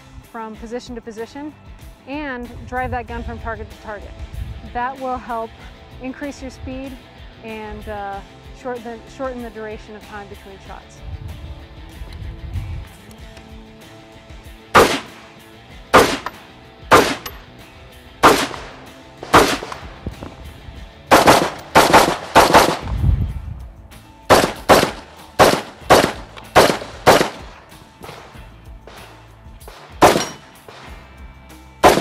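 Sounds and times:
rifle shots: 0:14.8 - 0:17.5, 0:18.2 - 0:20.2, 0:21.1 - 0:22.9, 0:24.3 - 0:31.1.

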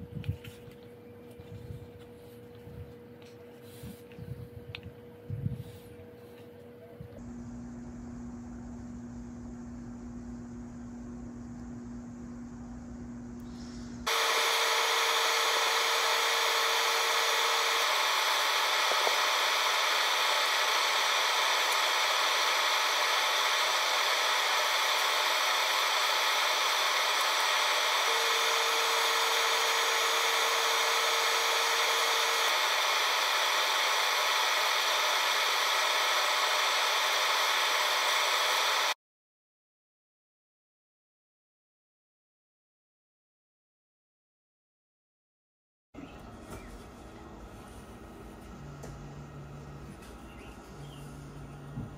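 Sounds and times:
low steady hum: 0:00.0 - 0:14.0
exhaust fan whirring hiss: 0:00.0 - 0:39.0.

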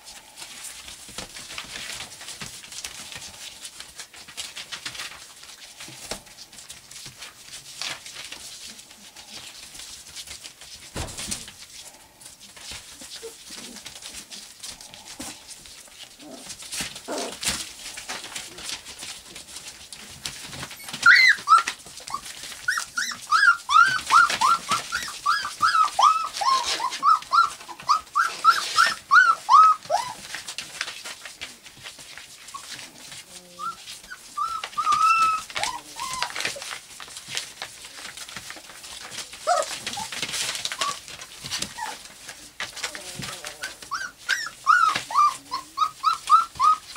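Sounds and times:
paws scratching on newspaper: 0:00.0 - 0:46.9
puppies whining and yelping: 0:11.0 - 0:37.4, 0:38.0 - 0:46.9.

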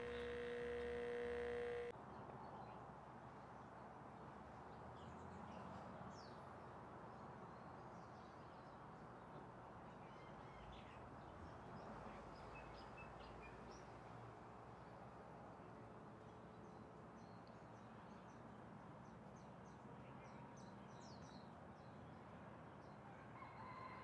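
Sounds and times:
soft outdoor hiss: 0:00.0 - 0:01.9.

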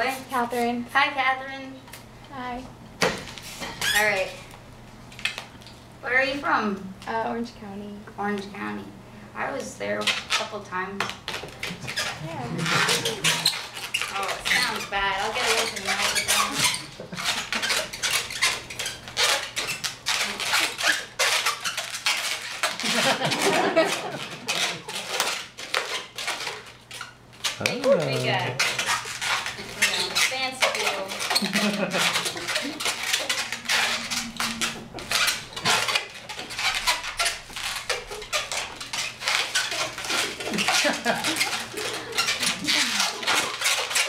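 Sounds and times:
balloon squeaking and rubbing: 0:03.4 - 0:04.4, 0:10.0 - 0:10.6, 0:11.2 - 0:44.0.

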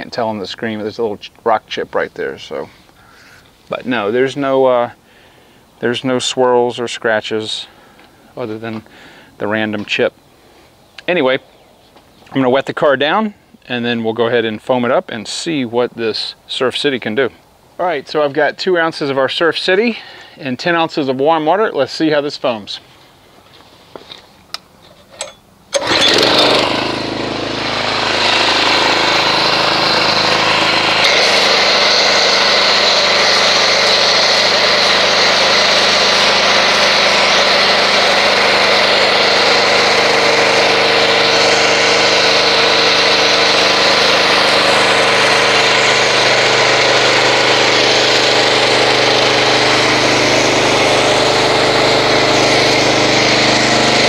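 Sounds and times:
pressure washer running: 0:25.2 - 0:54.0.

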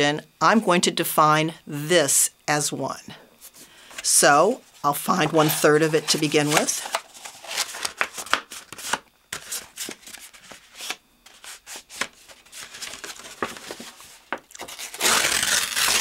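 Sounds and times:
paper crinkling and rustling: 0:05.1 - 0:16.0.

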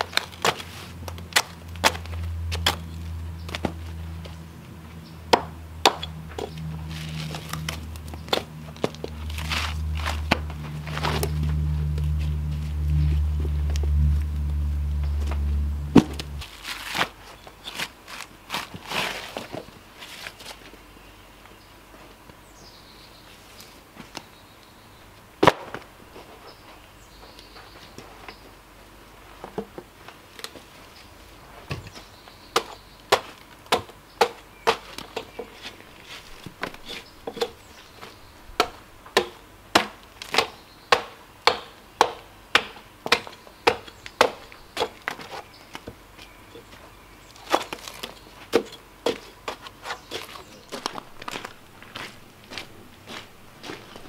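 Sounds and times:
tool chopping bark off log: 0:05.3 - 0:06.5, 0:32.6 - 0:35.4, 0:38.6 - 0:45.2.

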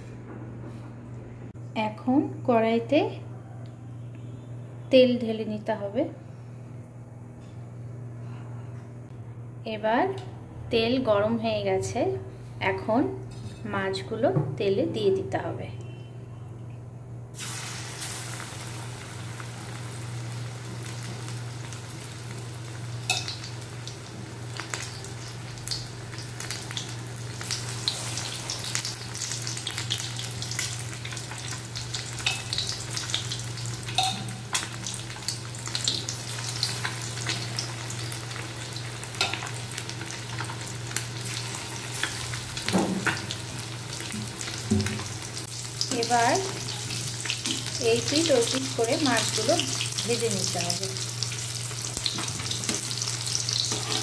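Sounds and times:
fish sizzling in hot oil: 0:17.4 - 0:54.0.

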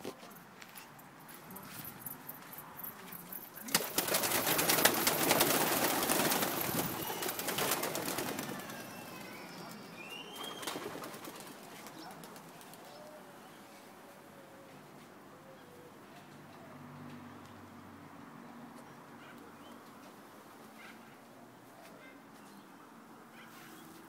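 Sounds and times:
pigeon wings flapping: 0:03.6 - 0:09.0, 0:10.5 - 0:12.9.

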